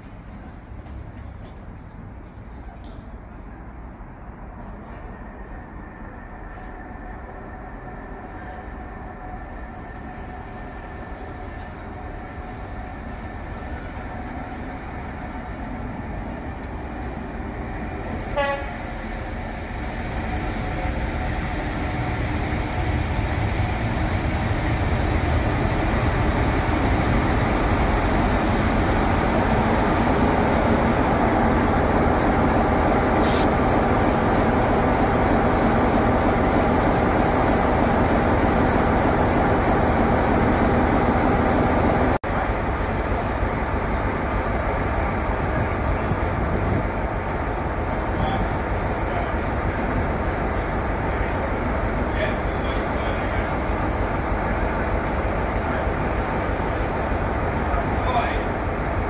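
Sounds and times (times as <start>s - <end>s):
diesel locomotive engine: 0.0s - 59.0s
faint high-pitched squeal: 4.8s - 16.1s, 20.6s - 31.2s
train horn toot: 18.3s - 18.8s.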